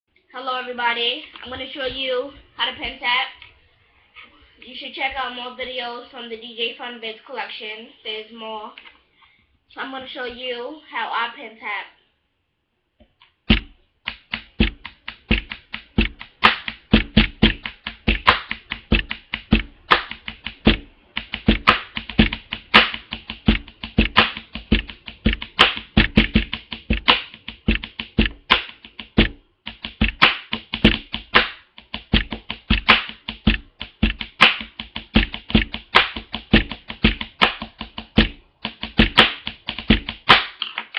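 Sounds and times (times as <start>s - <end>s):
pens tapping on surface: 13.5s - 40.9s.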